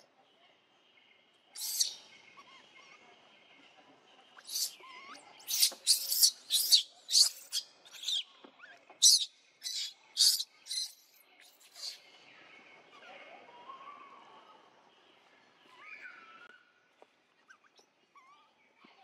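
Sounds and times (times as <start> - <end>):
baby monkey screaming: 1.6 - 3.0, 4.4 - 12.0.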